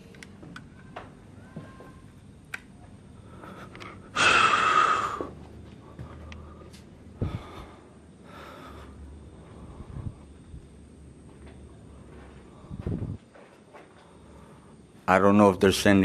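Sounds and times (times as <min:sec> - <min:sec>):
man exhaling loudly: 0:04.2 - 0:05.4
footsteps on stairs: 0:05.3 - 0:07.4.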